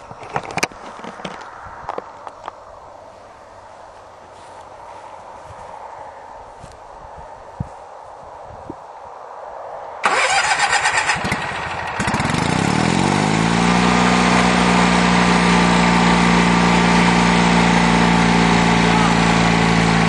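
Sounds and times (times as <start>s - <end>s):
engine starter cranking: 10.0s - 12.7s
lawn tractor engine idling: 10.0s - 20.0s.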